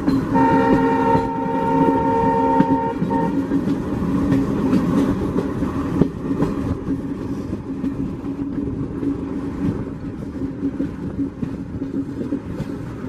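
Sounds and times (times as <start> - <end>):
train rumbling on rails: 0.0 - 13.0.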